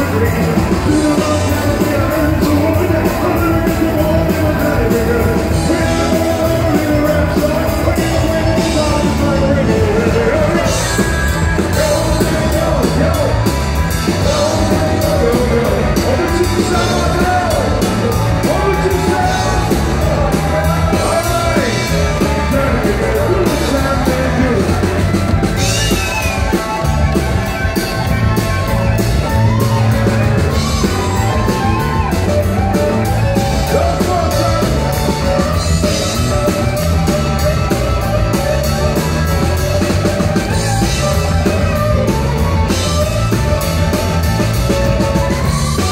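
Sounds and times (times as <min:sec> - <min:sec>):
man singing: 0:00.0 - 0:26.3, 0:29.2 - 0:39.4
electric guitar lead: 0:00.0 - 0:45.9
rock band playing: 0:00.0 - 0:45.9.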